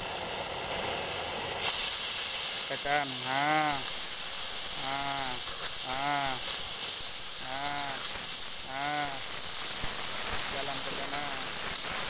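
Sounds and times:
cutting torch hissing: 0:00.0 - 0:12.0
short pitched calls: 0:04.7 - 0:06.5, 0:07.4 - 0:09.3.

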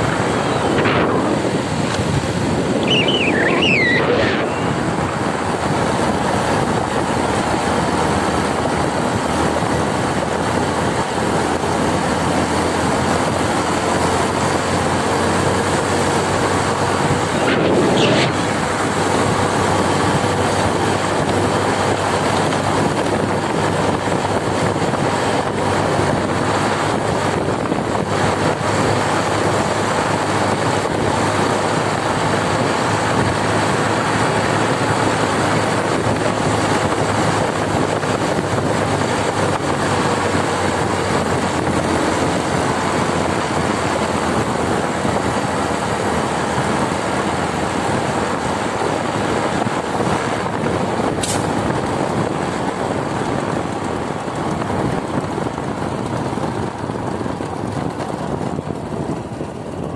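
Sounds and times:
motorcycle engine running: 0:00.0 - 0:59.9
wind on microphone: 0:00.0 - 0:59.9
short rising tone: 0:00.1 - 0:05.5.

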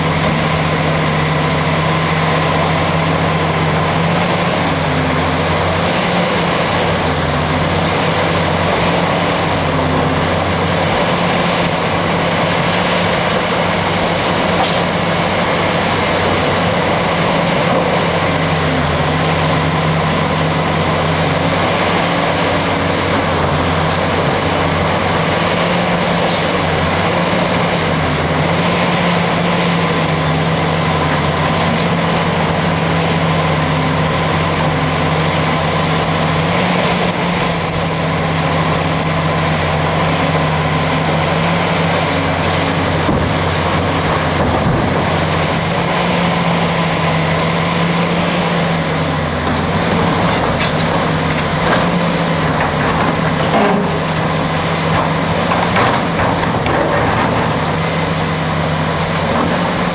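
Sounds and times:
excavator diesel engine running: 0:00.0 - 0:59.9
rock loading into truck: 0:42.3 - 0:45.7, 0:49.1 - 0:59.9.

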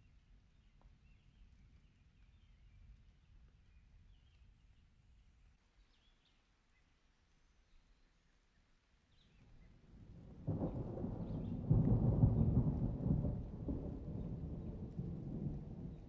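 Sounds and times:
thunder rumbling: 0:10.2 - 0:16.0.

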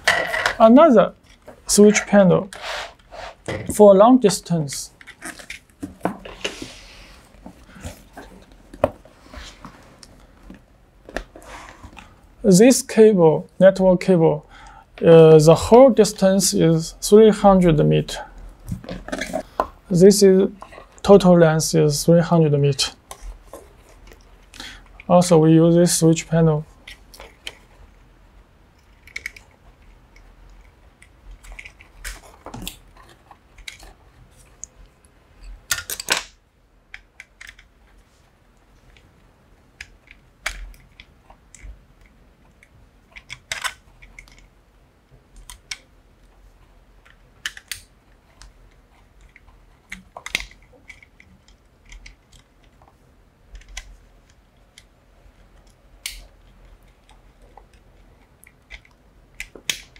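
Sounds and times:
rustling noise: 0:01.2 - 0:03.5, 0:04.8 - 0:10.6.

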